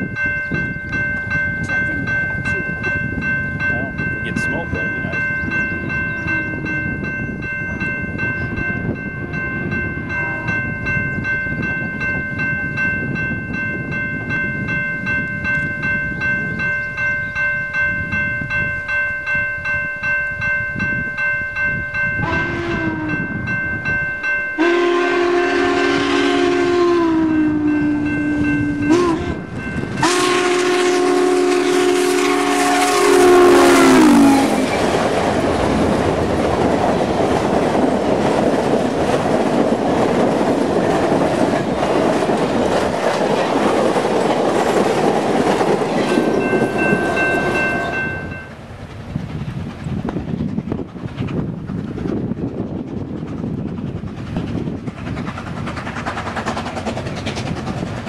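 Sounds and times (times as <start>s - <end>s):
train rhythmic pulsing: 0.0s - 58.0s
steam whistle blasts: 22.2s - 23.3s, 24.6s - 34.7s.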